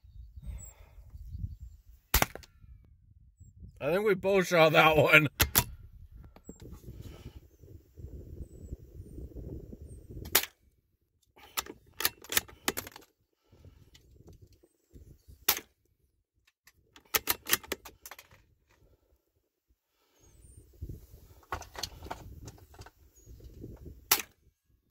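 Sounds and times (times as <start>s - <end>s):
rifle cracks: 2.1s - 2.5s, 24.1s - 24.4s.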